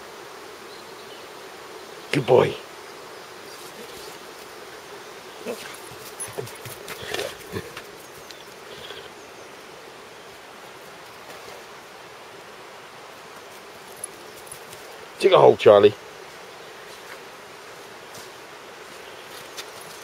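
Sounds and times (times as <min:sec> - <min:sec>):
footsteps on dirt and leaves: 0:05.5 - 0:08.6, 0:16.3 - 0:20.0.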